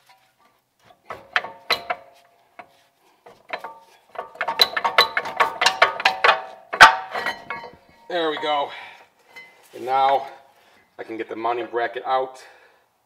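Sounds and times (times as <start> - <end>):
brake caliper clinking and rattling: 0.9 - 8.4.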